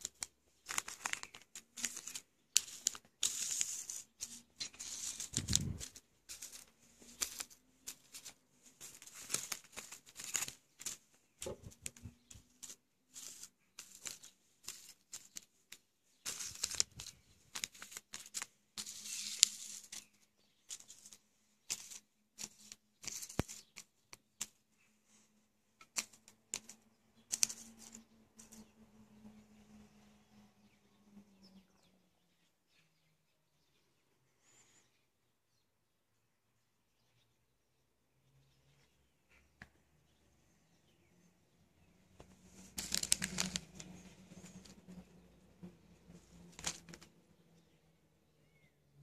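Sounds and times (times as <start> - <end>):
plastic sachets crinkling: 0.0 - 24.6, 25.8 - 28.7, 42.2 - 45.2, 46.5 - 47.1
small clicks: 0.0 - 24.6, 25.8 - 28.7, 42.2 - 45.1.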